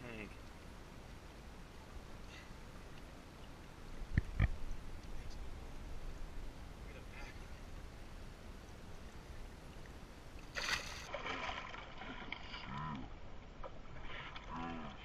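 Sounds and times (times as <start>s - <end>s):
water sloshing against boat: 0.3s - 15.0s
fish splash: 10.5s - 12.4s.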